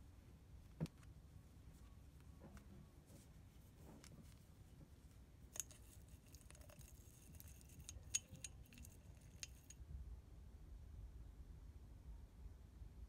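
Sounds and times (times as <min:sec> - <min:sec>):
clicks of glass jar handling: 0:05.6 - 0:09.8.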